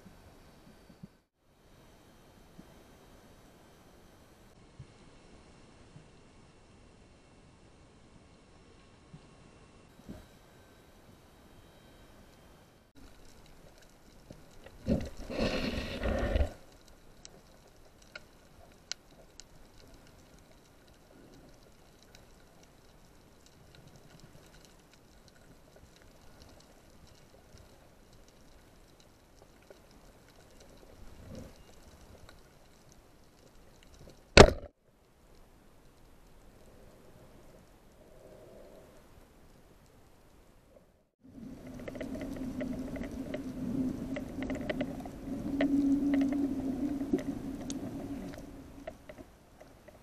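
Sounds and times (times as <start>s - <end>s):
faint underwater hiss: 0.0s - 34.4s, 35.0s - 50.0s
sharp knock: 34.4s - 34.7s.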